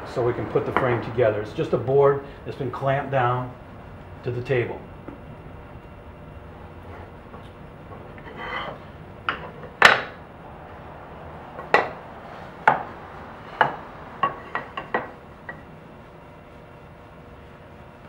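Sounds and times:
wood scraping on table: 8.1 - 10.1.

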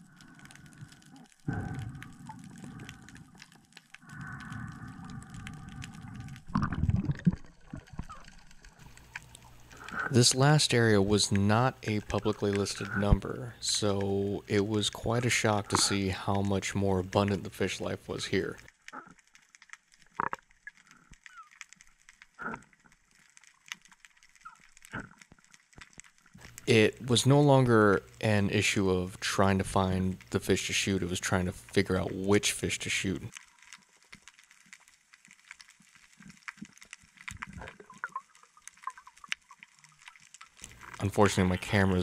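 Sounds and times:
underwater clicks and crackle: 0.0 - 42.0
low grunt-like sounds: 1.5 - 2.2.

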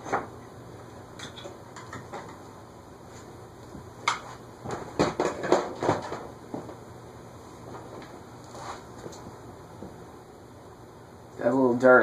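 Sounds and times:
ceiling fan humming: 0.0 - 12.0
hard objects clattering: 4.6 - 6.8.

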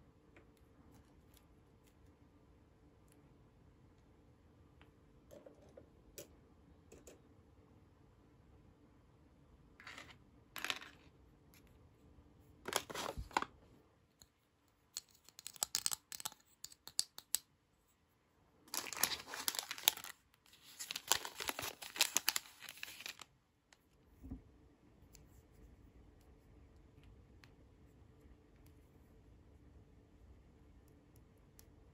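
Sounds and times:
plastic packaging crinkling: 12.7 - 13.5, 18.7 - 23.3
plastic toy pieces clicking: 15.0 - 17.4.

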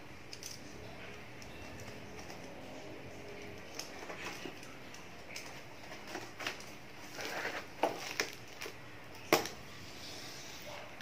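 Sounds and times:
scratchy rustles: 3.4 - 8.6.

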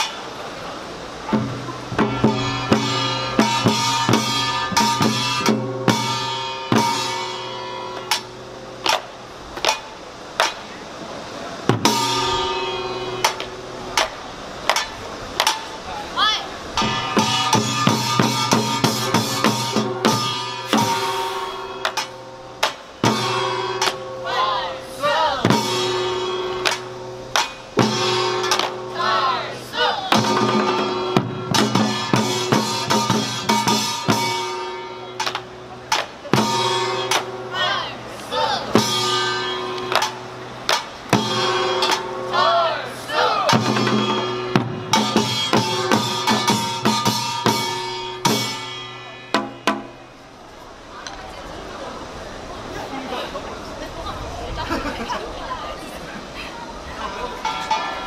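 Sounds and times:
drums playing rhythm: 1.2 - 10.7, 11.6 - 15.8, 16.8 - 29.4, 30.0 - 37.8, 38.6 - 50.1
small gong clanging: 1.3 - 9.0, 11.8 - 13.8, 16.8 - 24.7, 25.5 - 29.0, 30.2 - 35.6, 36.3 - 37.6, 38.7 - 42.7, 43.5 - 50.0
large gong struck and ringing: 2.0 - 8.9, 30.2 - 35.3.

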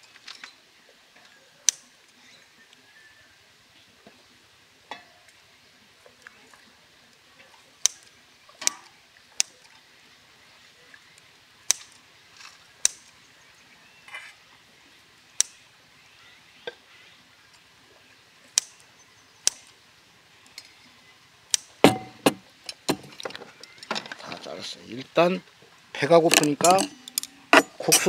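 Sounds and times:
metal utensils clinking on steel bowls: 26.3 - 28.0.

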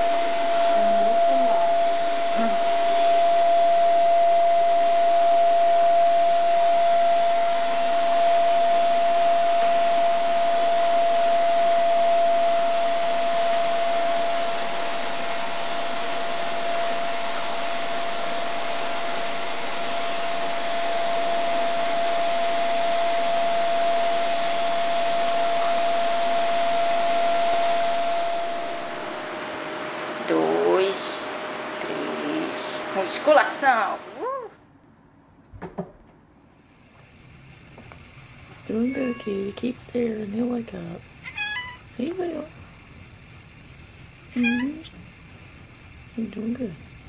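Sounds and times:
vacuum cleaner whining: 0.0 - 34.5, 35.6 - 47.0.

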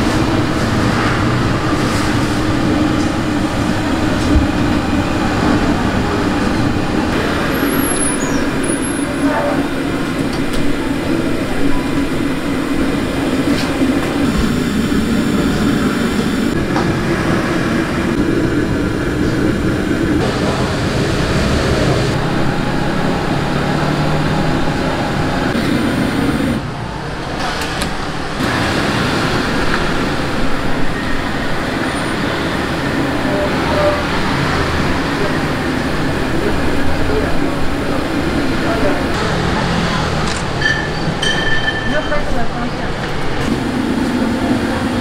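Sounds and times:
steam cabinet rumble and hiss: 0.0 - 39.7, 42.8 - 45.0.

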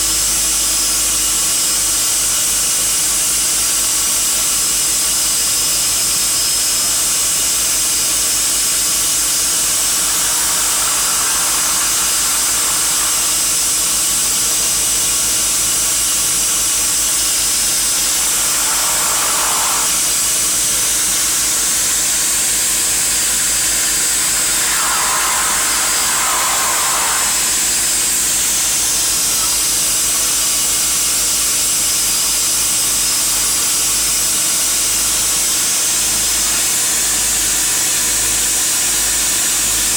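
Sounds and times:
turboprop engines running: 8.8 - 14.9, 16.9 - 28.6.

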